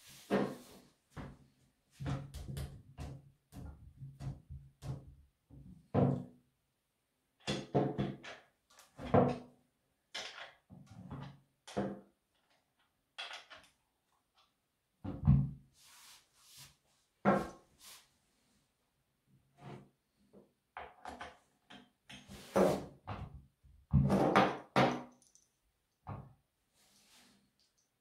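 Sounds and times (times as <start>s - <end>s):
soft scrape: 15.8s - 16.9s, 17.8s - 18.6s, 26.8s - 27.5s.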